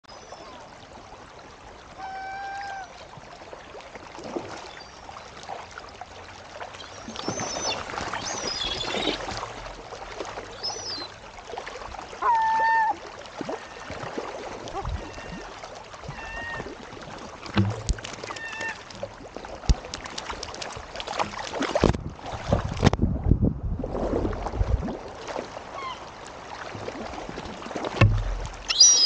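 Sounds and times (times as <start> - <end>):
gulls splashing into water: 1.9 - 22.9, 24.3 - 29.0
gulls calling: 6.8 - 9.4, 10.5 - 11.2, 12.2 - 13.9, 14.7 - 16.7, 17.6 - 18.9, 28.6 - 29.0.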